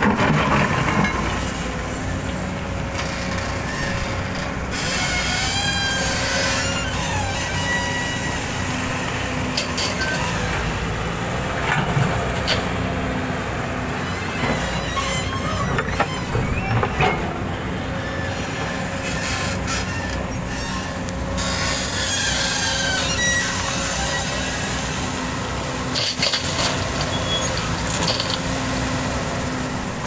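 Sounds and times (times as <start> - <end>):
excavator engine and hydraulics: 0.0 - 30.0
thin high squeals: 4.8 - 8.8, 14.2 - 17.2, 19.0 - 24.4, 27.0 - 27.6.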